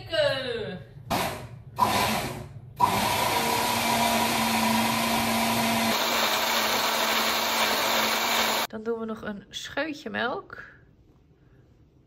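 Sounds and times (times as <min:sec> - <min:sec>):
blender whining: 0:01.1 - 0:08.7.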